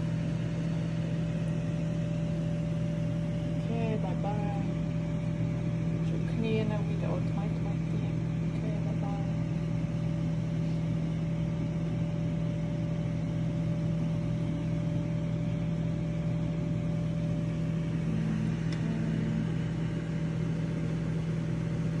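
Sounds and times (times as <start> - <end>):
electric motor humming: 12.8 - 22.0.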